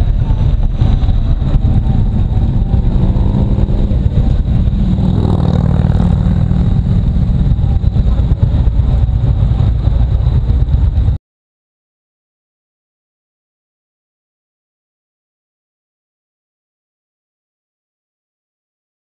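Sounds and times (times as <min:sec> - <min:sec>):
motorcycle engine running: 0:00.0 - 0:11.2
wind buffeting microphone: 0:00.0 - 0:11.2.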